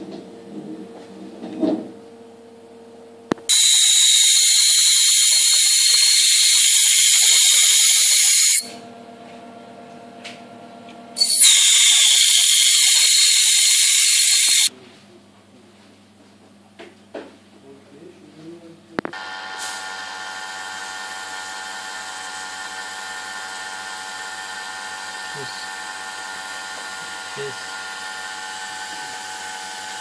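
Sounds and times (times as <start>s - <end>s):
ultrasonic sonicator screech: 3.5s - 8.8s, 11.2s - 14.7s.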